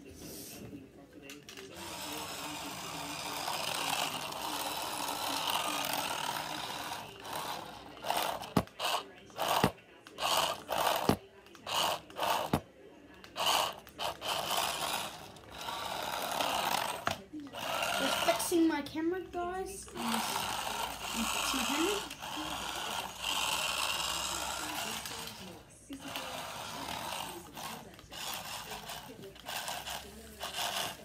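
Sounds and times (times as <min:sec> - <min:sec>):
toy car electric motor whirring: 0:01.2 - 0:31.0.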